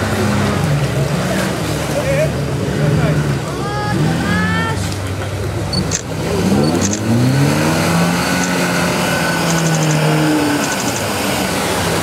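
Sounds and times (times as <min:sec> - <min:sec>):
off-road vehicle engine revving: 0:00.0 - 0:12.0
vehicle splashing through mud and water: 0:00.0 - 0:12.0.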